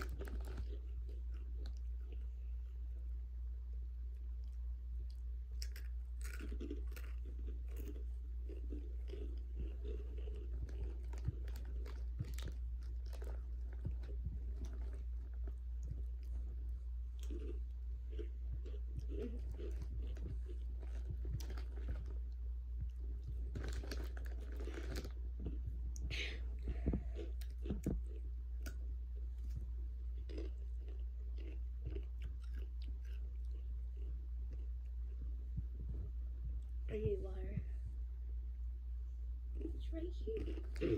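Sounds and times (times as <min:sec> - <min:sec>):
chips crunching: 0:00.0 - 0:02.3, 0:04.4 - 0:22.4, 0:23.4 - 0:25.6, 0:29.4 - 0:34.7
low hum: 0:00.0 - 0:40.9.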